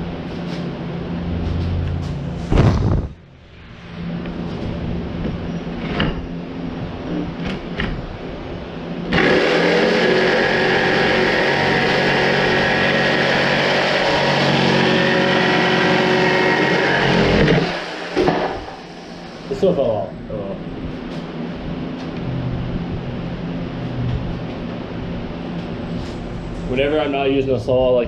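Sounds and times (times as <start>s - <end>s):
jigsaw cutting plywood: 9.1s - 18.6s.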